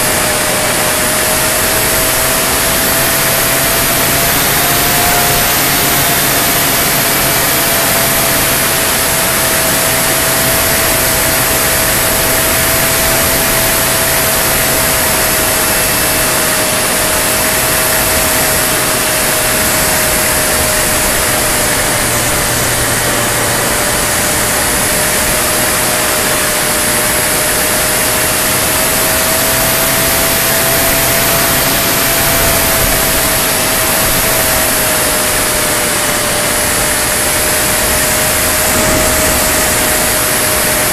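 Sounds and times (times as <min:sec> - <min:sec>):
model plane motor droning: 0:00.0 - 0:40.9
wind rushing: 0:38.1 - 0:40.9.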